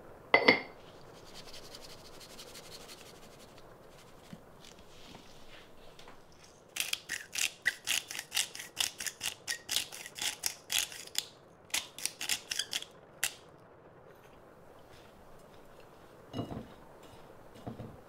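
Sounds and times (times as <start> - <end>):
pepper mill grinding clicks: 6.8 - 13.4.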